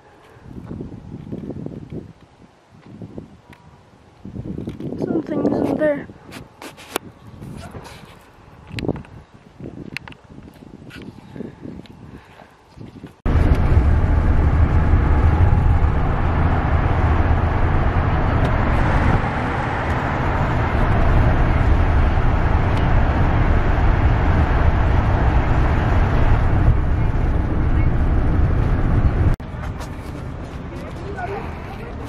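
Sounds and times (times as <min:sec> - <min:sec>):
tyre and wind noise: 0:00.0 - 0:32.0
engine and road rumble: 0:12.6 - 0:32.0.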